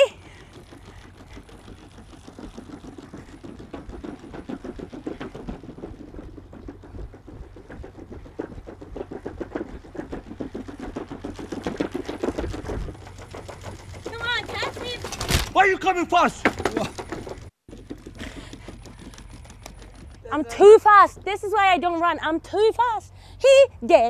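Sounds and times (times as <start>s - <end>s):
leg motors whirring: 0.0s - 15.6s.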